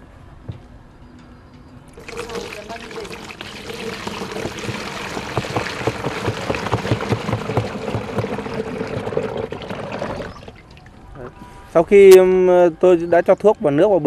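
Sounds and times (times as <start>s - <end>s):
water pouring into tank: 2.0s - 10.9s.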